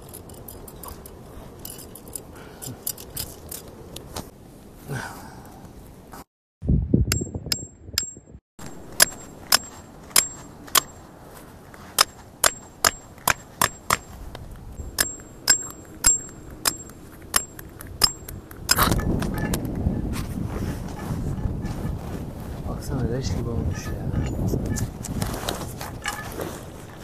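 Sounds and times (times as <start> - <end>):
wind rumble on microphone: 5.5 - 9.0, 14.0 - 15.0, 16.4 - 27.0
hammer clanking on metal stake: 7.1 - 11.0, 12.0 - 14.1, 14.9 - 19.6.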